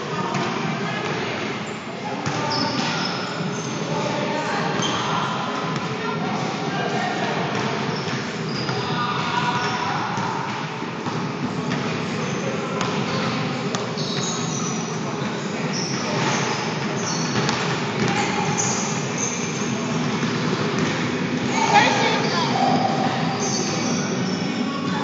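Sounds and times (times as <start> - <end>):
sneaker squeaks: 0.3 - 5.5, 7.1 - 25.0
basketball bouncing: 17.2 - 18.8, 20.1 - 21.5.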